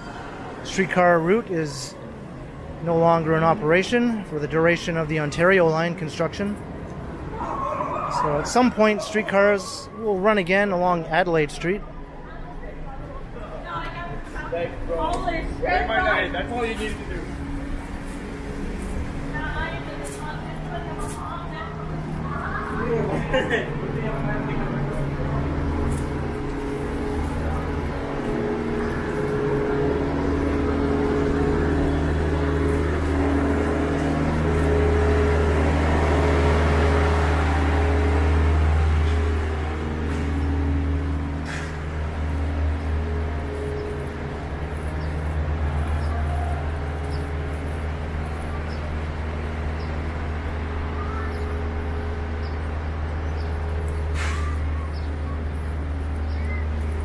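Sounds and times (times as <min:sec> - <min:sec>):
traffic engine hum: 0:00.0 - 0:57.0
tyres hissing on wet road: 0:54.0 - 0:54.7.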